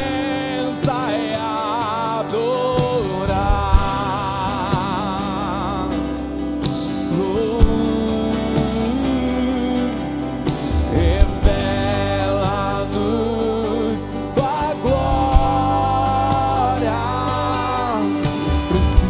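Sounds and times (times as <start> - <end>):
strummed acoustic guitar: 0.0 - 19.0.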